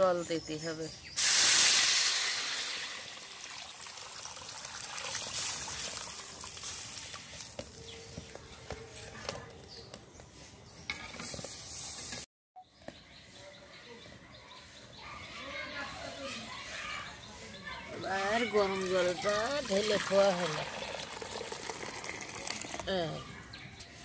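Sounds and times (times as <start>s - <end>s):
water pouring and bubbling: 1.2s - 7.3s, 18.9s - 23.0s
water hissing in hot wok: 1.2s - 7.5s.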